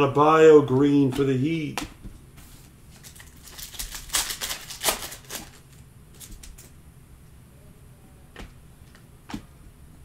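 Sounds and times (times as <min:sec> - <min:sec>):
wrapper crinkling: 0:02.9 - 0:06.7.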